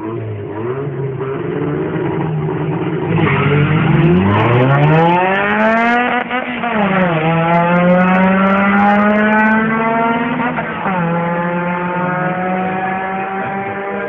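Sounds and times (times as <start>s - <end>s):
car engine at full throttle: 0.0s - 14.0s.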